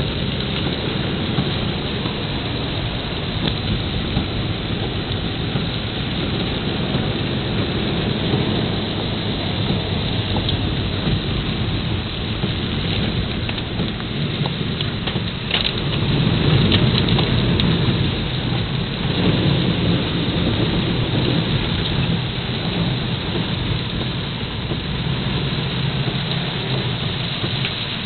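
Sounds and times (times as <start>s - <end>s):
deep rumble: 0.0s - 28.0s
heavy rain falling: 0.0s - 28.0s.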